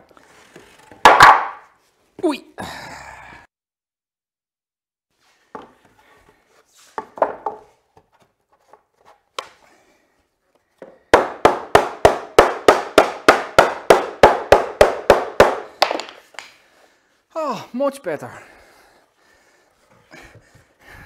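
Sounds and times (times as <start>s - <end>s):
wooden boards knocking and scraping: 0.6s - 1.6s, 6.9s - 9.2s.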